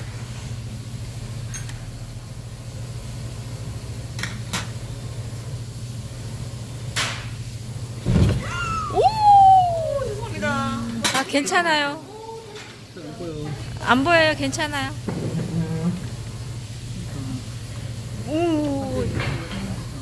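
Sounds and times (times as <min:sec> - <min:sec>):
dull thump: 0:08.0 - 0:08.5.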